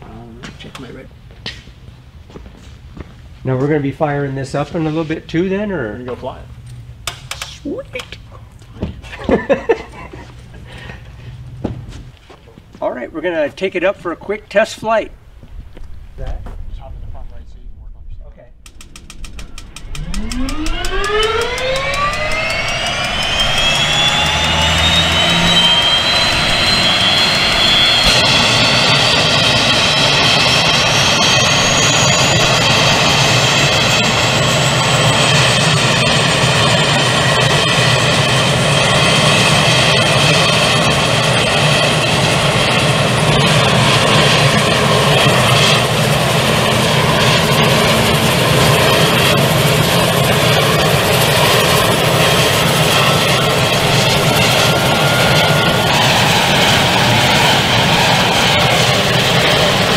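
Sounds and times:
turboprop engine spooling up: 13.2s - 59.9s
high whine rising in pitch: 14.2s - 59.9s
low hum of turning propeller: 15.1s - 59.9s.

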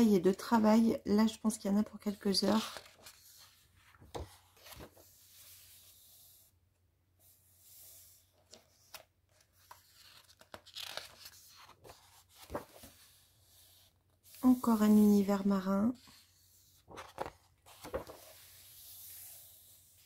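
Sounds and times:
paper pages rustling: 2.3s - 5.9s, 8.4s - 15.4s, 16.0s - 19.7s.

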